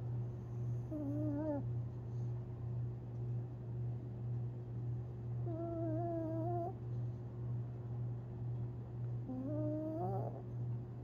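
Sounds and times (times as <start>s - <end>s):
dog whining in sleep: 0.8s - 1.7s, 5.4s - 6.8s, 9.2s - 10.5s.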